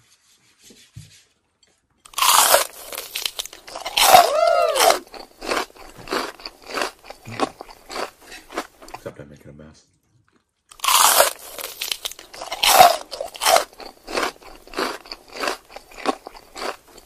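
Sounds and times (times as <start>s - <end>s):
person chewing with wet crunching: 2.1s - 9.1s, 10.3s - 17.0s.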